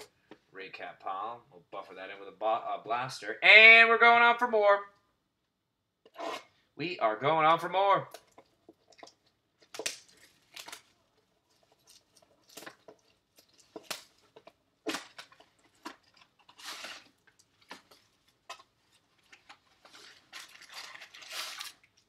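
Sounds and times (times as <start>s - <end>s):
cardboard and wrapper rustling: 8.3s - 22.0s.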